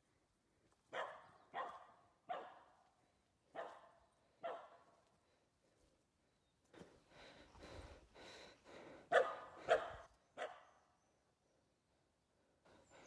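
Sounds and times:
dog barking: 0.9 - 2.8, 3.5 - 4.8, 9.1 - 10.7.

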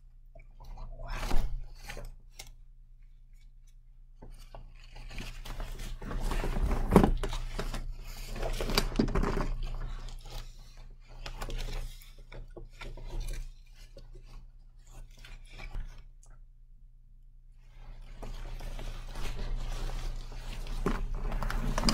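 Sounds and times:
cloth rustling: 17.8 - 21.9.

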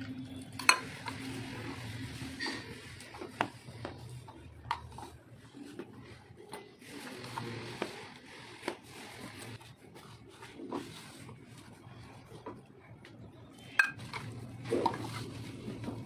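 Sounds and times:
hands rubbing dough: 0.0 - 16.0
clinks against steel bowl: 0.6 - 1.2.

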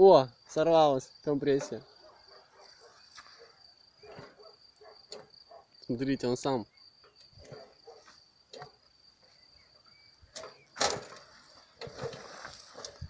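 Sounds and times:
crickets trilling: 0.0 - 13.0
scraping rustle: 10.4 - 13.0.

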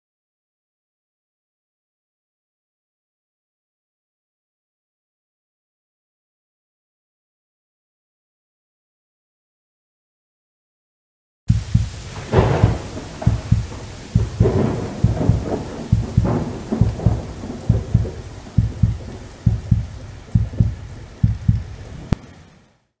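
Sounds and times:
deep heartbeat-like thumps: 11.5 - 22.3
static crackles: 11.5 - 22.9
static hiss: 11.5 - 23.0.

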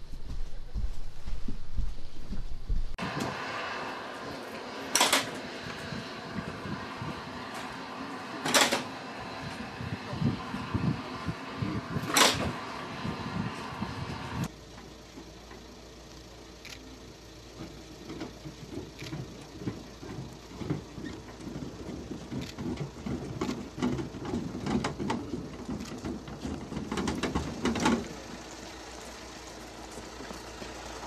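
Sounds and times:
footsteps on metal stairs: 0.0 - 3.4, 17.6 - 28.4
steady low hum: 0.0 - 31.0.

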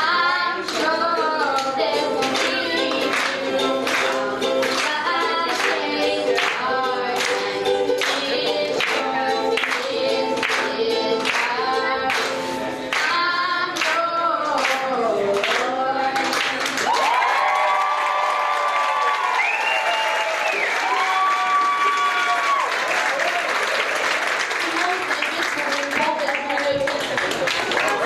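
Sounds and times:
strummed ukulele: 0.0 - 16.7
woman singing pop song: 0.0 - 17.0.

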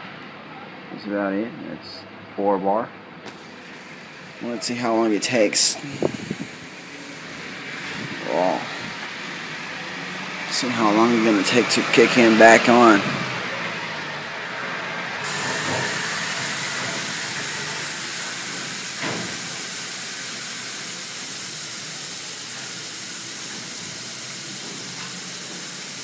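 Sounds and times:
compressed air hissing from airbrush: 5.6 - 9.1, 15.2 - 26.0.

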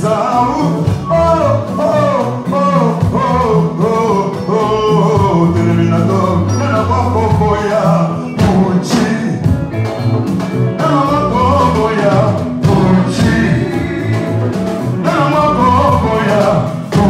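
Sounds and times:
men singing: 0.0 - 9.6, 10.7 - 17.0
drums beating: 0.0 - 17.0
low bass notes: 0.0 - 17.0.

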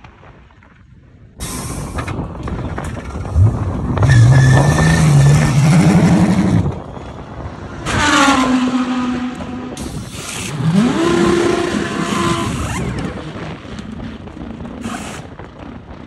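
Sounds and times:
race car engines accelerating: 2.8 - 14.8.

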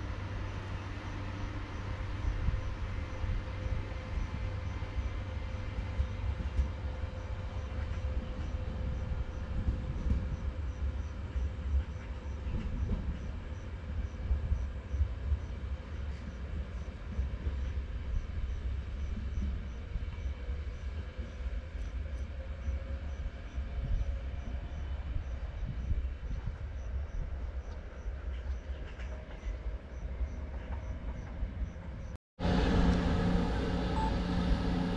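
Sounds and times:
distant train rumble: 0.0 - 34.9.

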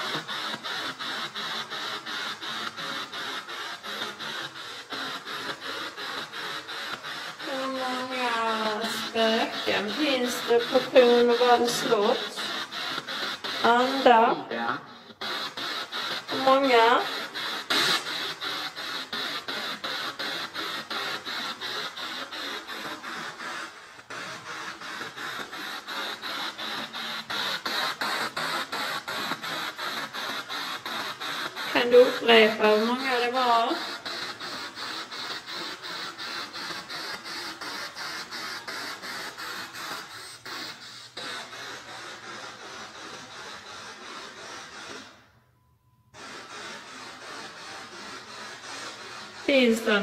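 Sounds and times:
snatch of radio noise: 46.2 - 50.0.

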